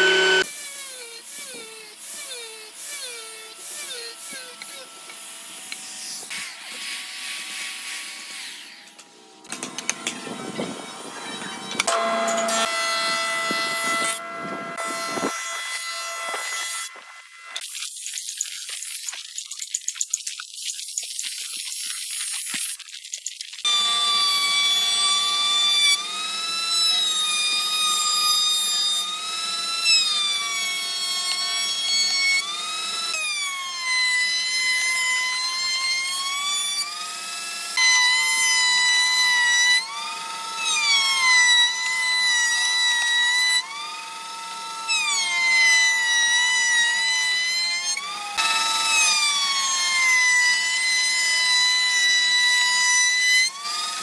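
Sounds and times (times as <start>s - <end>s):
circular saw whining: 0.0s - 18.0s, 23.7s - 54.0s.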